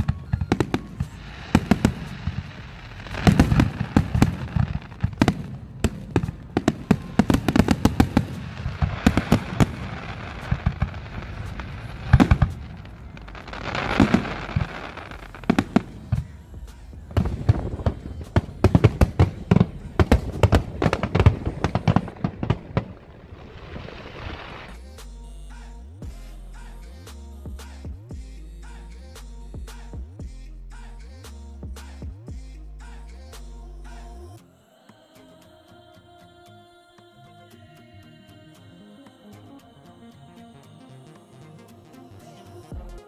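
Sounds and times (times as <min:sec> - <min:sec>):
fireworks bursting with bangs: 0:00.0 - 0:24.7
fireworks crackling hiss: 0:00.0 - 0:27.8.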